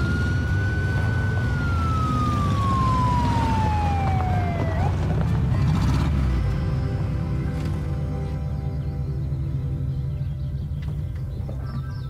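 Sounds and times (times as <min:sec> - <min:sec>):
police siren winding down: 0:00.0 - 0:05.4
vehicle low rumble: 0:00.0 - 0:12.0.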